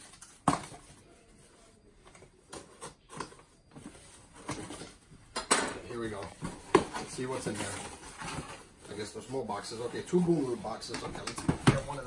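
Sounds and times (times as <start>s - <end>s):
cardboard rustles and scrapes: 6.0s - 12.0s.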